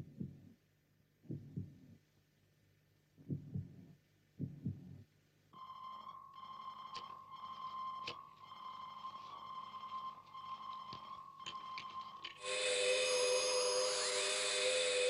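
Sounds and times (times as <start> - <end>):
heartbeat thumps: 0.0 - 0.6, 1.2 - 2.1, 3.2 - 5.1
faint bleeps and sharp clicks: 5.6 - 12.5
steady high electronic tone: 5.6 - 15.0.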